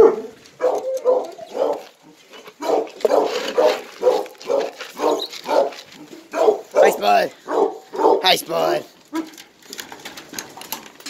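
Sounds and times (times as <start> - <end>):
hounds barking: 0.0 - 8.4.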